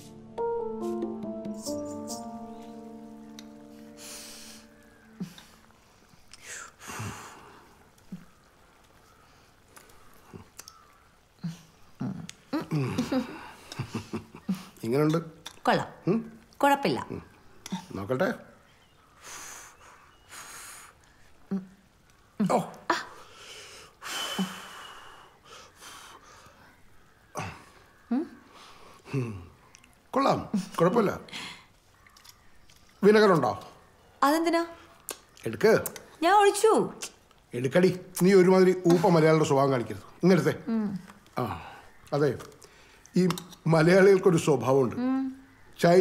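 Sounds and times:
piano music: 0:00.0 - 0:05.8
breathy sounds: 0:27.3 - 0:29.7
man humming murmurs: 0:29.1 - 0:29.6.

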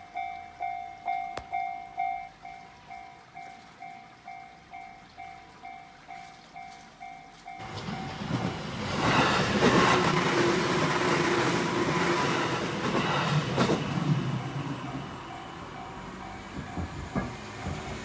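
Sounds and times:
electric train rumbling: 0:06.9 - 0:18.0
train wheel clacks: 0:07.6 - 0:18.0.

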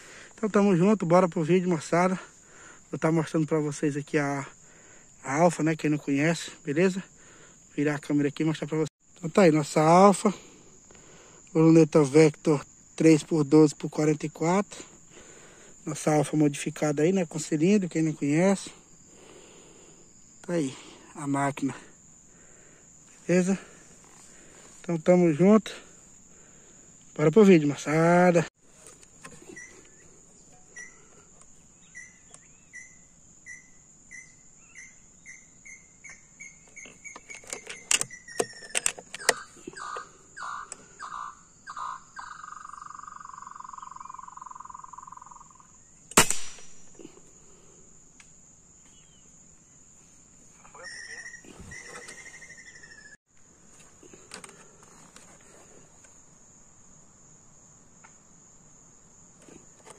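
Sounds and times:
cicada calling: 0:00.0 - 0:59.9
high insect buzz: 0:00.0 - 0:59.9
sharp crack: 0:46.1 - 0:47.0.

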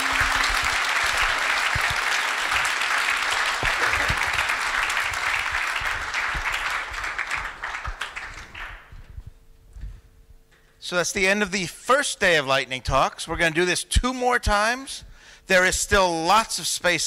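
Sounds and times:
audience applause: 0:00.0 - 0:08.9.

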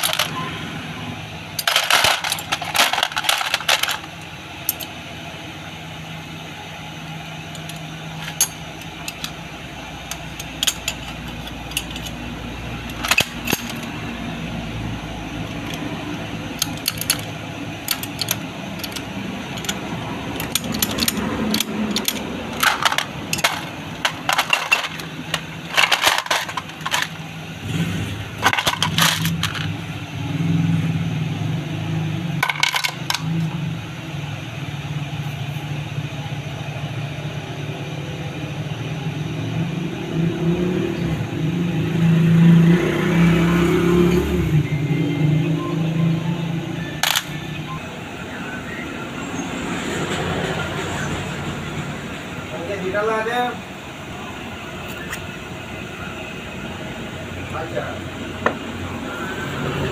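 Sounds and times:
metal parts clinking: 0:00.0 - 0:00.4, 0:01.6 - 0:04.9, 0:07.5 - 0:09.4, 0:10.0 - 0:14.1, 0:15.4 - 0:27.3, 0:28.3 - 0:29.8, 0:32.4 - 0:33.5, 0:47.0 - 0:47.6.

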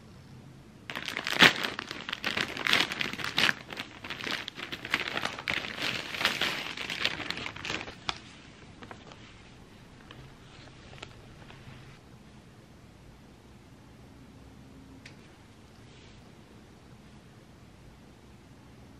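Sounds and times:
plastic bag crinkling and tearing: 0:00.9 - 0:09.2.

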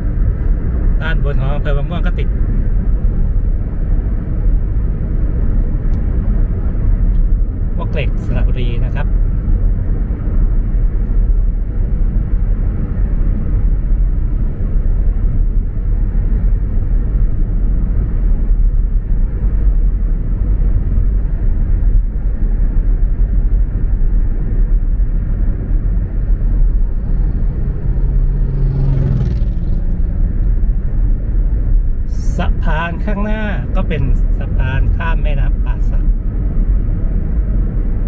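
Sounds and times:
car road and engine rumble: 0:00.0 - 0:38.0
truck passing hum: 0:19.0 - 0:32.8.

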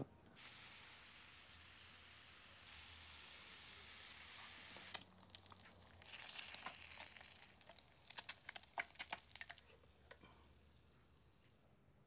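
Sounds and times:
frying in a pan: 0:00.4 - 0:10.2
sharp crackles: 0:02.7 - 0:09.7.

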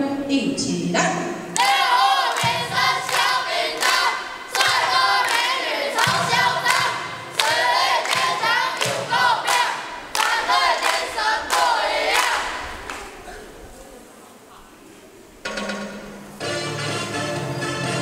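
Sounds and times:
children singing in unison: 0:01.6 - 0:13.5.

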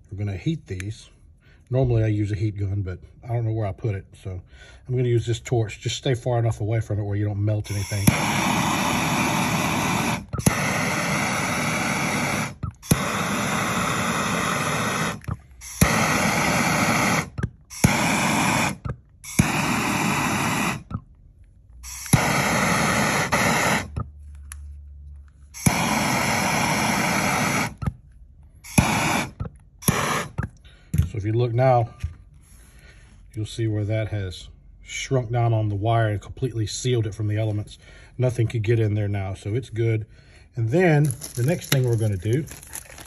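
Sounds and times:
gas torch flame hissing: 0:07.6 - 0:21.0, 0:21.8 - 0:24.0, 0:25.6 - 0:28.0, 0:28.6 - 0:30.6, 0:40.8 - 0:43.0
torch ignition click: 0:07.7 - 0:21.0, 0:21.8 - 0:24.0, 0:25.6 - 0:28.0, 0:28.7 - 0:30.6.

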